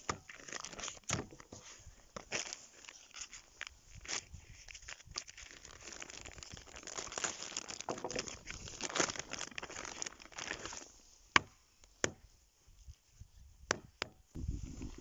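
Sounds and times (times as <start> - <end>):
plastic bag crinkling: 0.3 - 1.1, 2.2 - 10.9.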